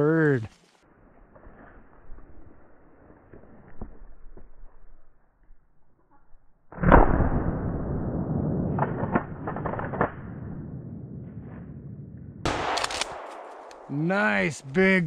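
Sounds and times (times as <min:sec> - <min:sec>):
shotgun shot: 0:06.7 - 0:10.5, 0:12.4 - 0:14.0
crackling: 0:12.5 - 0:15.0.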